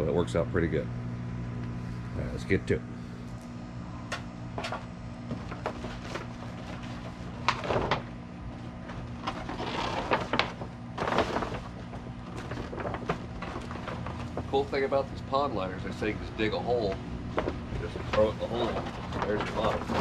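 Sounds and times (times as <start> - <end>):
steady low hum: 0.0 - 20.0
plastic liner rustling and crinkling: 4.6 - 15.2, 15.9 - 20.0.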